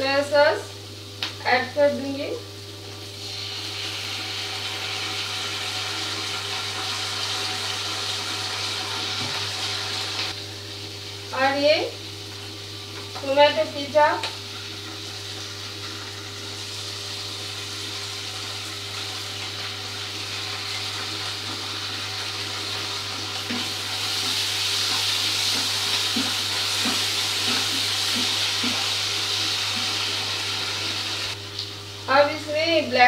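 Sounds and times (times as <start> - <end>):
food sizzling in a frying pan: 0.0 - 33.0.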